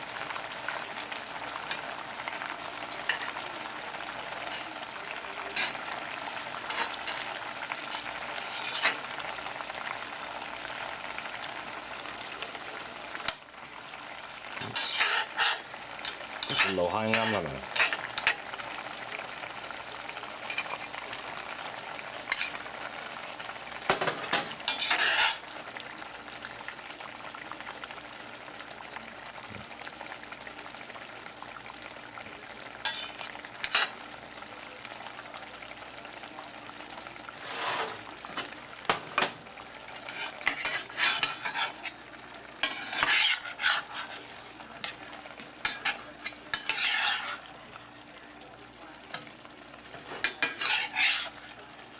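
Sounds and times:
tofu sizzling in skillet: 0.0s - 51.9s
metal spatula scraping pan: 7.9s - 9.0s, 14.6s - 18.4s, 24.3s - 25.5s, 37.4s - 38.1s, 39.9s - 42.0s, 42.6s - 45.0s, 45.6s - 47.5s, 50.0s - 51.4s.

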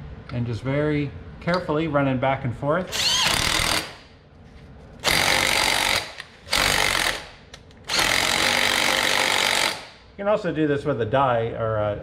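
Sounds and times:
impact wrench bursts: 2.8s - 4.1s, 5.0s - 10.0s.

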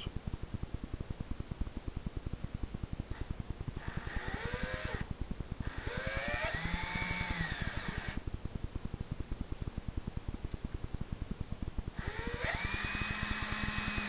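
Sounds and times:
low pulsing hum: 0.0s - 14.0s
cordless drill driving screws: 5.8s - 8.2s, 12.0s - 14.0s.

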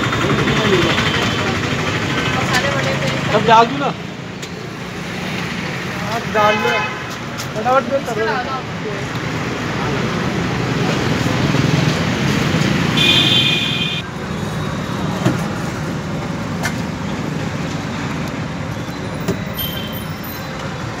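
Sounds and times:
street traffic noise: 0.0s - 21.0s
vehicle horn: 13.0s - 14.0s.

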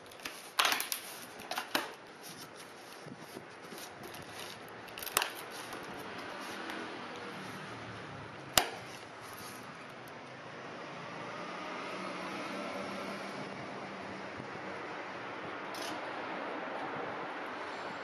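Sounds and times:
packing tape slit and torn: 0.0s - 2.6s, 3.6s - 6.8s
cardboard flaps scraping and rustling: 0.0s - 7.6s.

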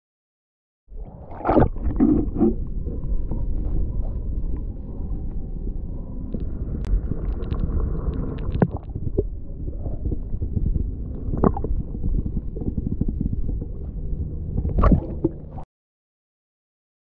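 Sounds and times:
muffled underwater stream rumble: 0.9s - 15.6s
sharp knocks underwater: 14.6s - 15.6s.

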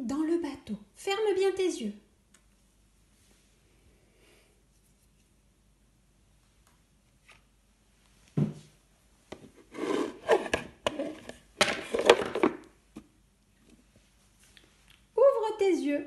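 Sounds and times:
plastic scraping and clicking: 9.7s - 12.6s.

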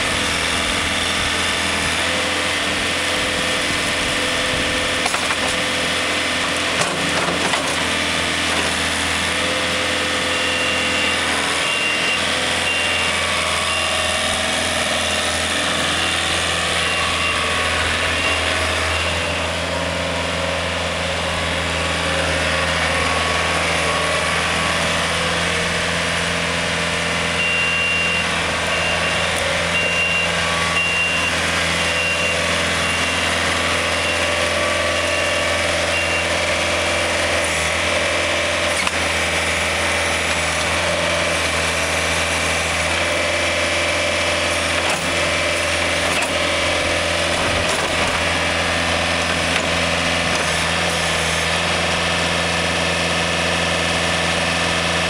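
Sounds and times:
diesel engine running: 0.0s - 55.0s
reversing alarm beeping: 9.9s - 20.1s, 27.1s - 36.6s.

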